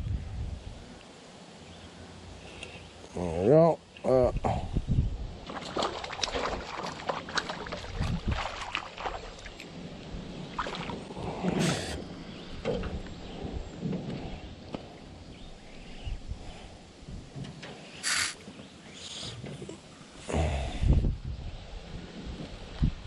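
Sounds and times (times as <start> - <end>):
water splash: 5.4 - 9.6, 10.5 - 12.0.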